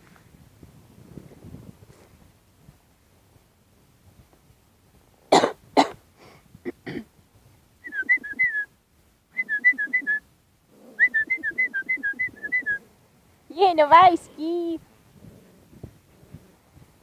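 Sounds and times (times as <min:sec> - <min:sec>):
person coughing: 0:05.3 - 0:06.0, 0:06.6 - 0:07.1
person whistling quick notes: 0:07.9 - 0:08.7, 0:09.4 - 0:10.2, 0:11.0 - 0:12.8.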